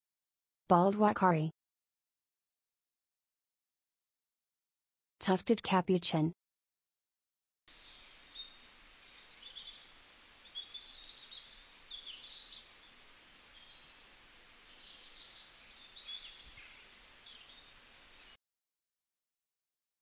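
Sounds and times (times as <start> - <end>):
faint steady hiss: 7.7 - 18.4.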